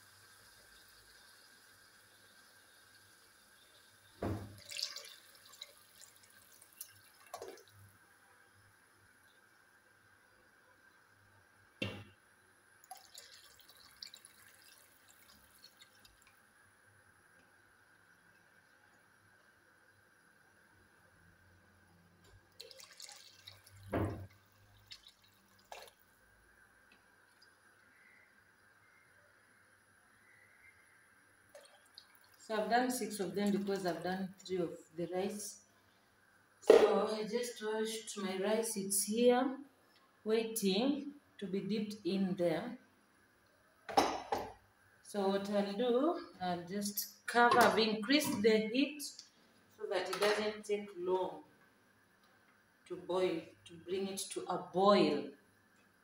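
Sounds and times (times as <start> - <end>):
water dripping: 0.0 - 8.0, 12.8 - 16.5, 22.2 - 29.0, 31.5 - 34.6, 49.1 - 49.4
water splashing into a pot: 0.4 - 7.9, 12.8 - 16.5, 22.4 - 26.2, 31.5 - 34.0
small knocks of bowl and jug: 43.9 - 44.6.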